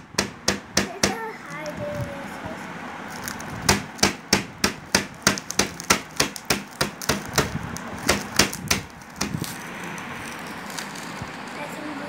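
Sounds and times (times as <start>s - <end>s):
metal rod pounding cookies: 0.0s - 1.3s, 3.2s - 9.6s.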